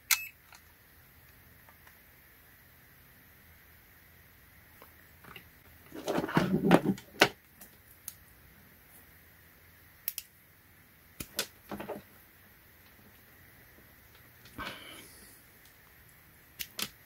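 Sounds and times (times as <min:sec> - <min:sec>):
rustling and plastic clatter: 0:05.2 - 0:07.4, 0:11.6 - 0:12.2.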